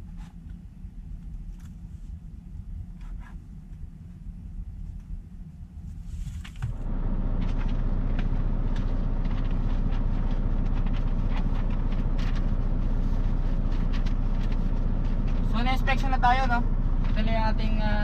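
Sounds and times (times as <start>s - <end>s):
low mechanical hum: 0.0s - 18.0s
paper rustling: 5.9s - 6.8s, 7.4s - 15.9s.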